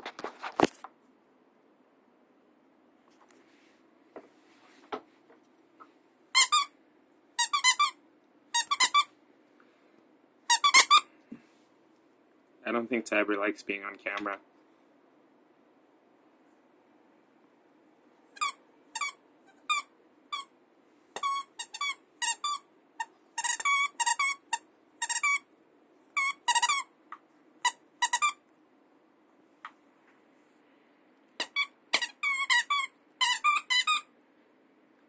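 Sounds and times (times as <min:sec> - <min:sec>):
dog toy squeaking: 0:06.3 - 0:06.7, 0:07.4 - 0:09.1, 0:10.5 - 0:11.1, 0:18.4 - 0:20.5, 0:21.2 - 0:25.5, 0:26.2 - 0:26.9, 0:27.6 - 0:28.4, 0:31.4 - 0:34.1.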